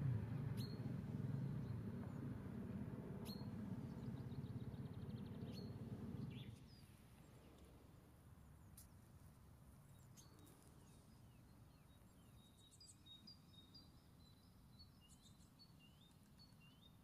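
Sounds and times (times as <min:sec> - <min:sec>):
low background rumble: 0:00.0 - 0:07.6.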